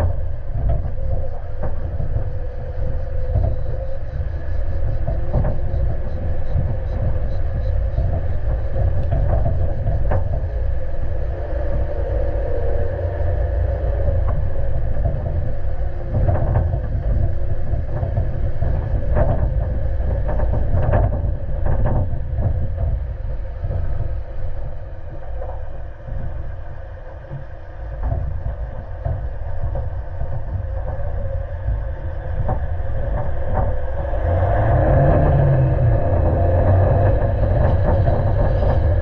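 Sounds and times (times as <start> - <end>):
engine and tyres rumbling: 0.0 - 39.0
bodywork knocks and rattles: 14.3 - 24.6, 25.2 - 39.0.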